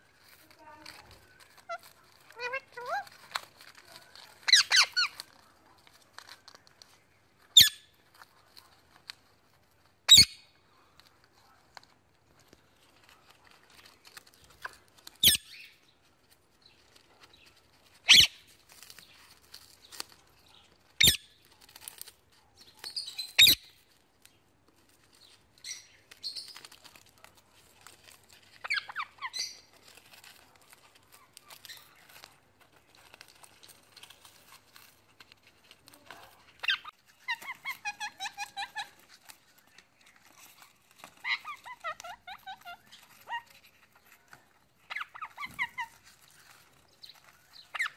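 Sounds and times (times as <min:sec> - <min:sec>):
parakeet calls: 0:04.4 - 0:05.2, 0:10.1 - 0:10.4, 0:18.0 - 0:18.4, 0:22.9 - 0:23.7, 0:28.6 - 0:29.7, 0:41.0 - 0:44.0, 0:44.8 - 0:47.9.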